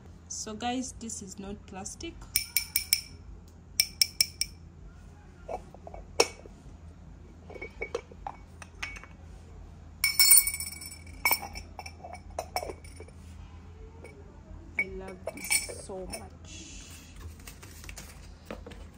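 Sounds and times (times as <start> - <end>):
ceramic clinks: 2.3 - 3.2, 3.8 - 4.6, 5.5 - 6.5, 7.5 - 9.2, 10.0 - 13.2, 14.8 - 16.3.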